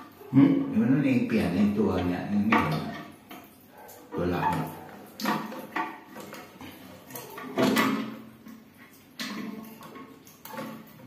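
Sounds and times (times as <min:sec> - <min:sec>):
toilet fill valve clunking: 0:04.2 - 0:11.0.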